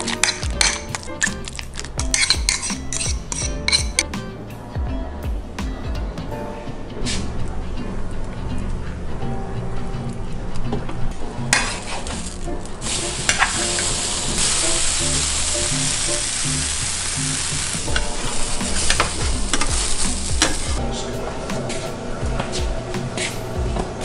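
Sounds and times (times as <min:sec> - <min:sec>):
background music: 0:00.0 - 0:24.0
bread sizzling in a pan: 0:11.6 - 0:20.7.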